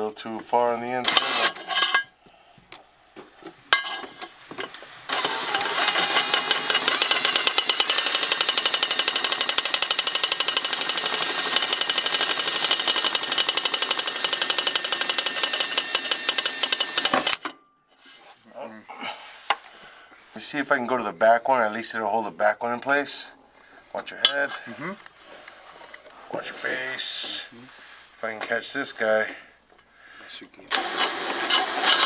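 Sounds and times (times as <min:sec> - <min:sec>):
power driver driving screw into metal: 0:01.0 - 0:02.0, 0:05.1 - 0:17.5.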